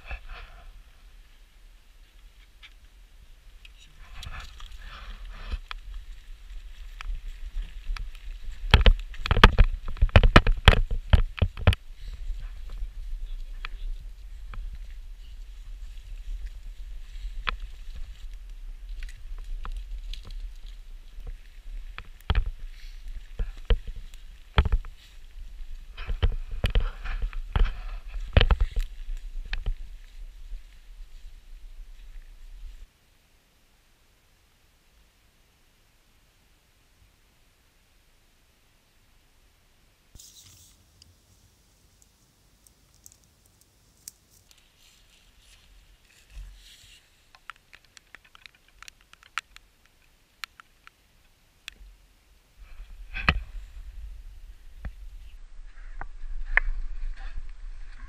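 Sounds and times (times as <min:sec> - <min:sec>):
wind rumble on microphone: 0:03.2 - 0:32.9, 0:52.5 - 0:58.0
twigs cracking: 0:03.6 - 0:32.9, 0:42.0 - 0:51.9
footsteps through forest undergrowth: 0:04.0 - 0:32.9, 0:43.9 - 0:48.8
brush rustling against clothing: 0:43.8 - 0:47.4
steady low rumble: 0:52.0 - 0:58.0.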